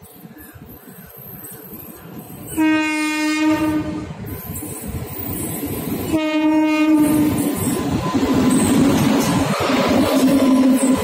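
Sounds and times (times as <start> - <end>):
train rumbling: 0.0 - 11.0
train horn blasts: 2.5 - 4.2, 6.1 - 7.5.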